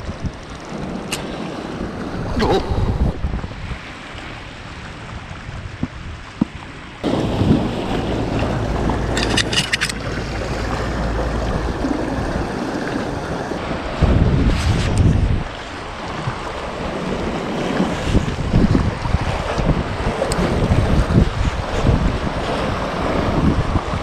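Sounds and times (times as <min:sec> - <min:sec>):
wind buffeting microphone: 0:00.0 - 0:24.0
waves washing against rocks: 0:07.0 - 0:24.0.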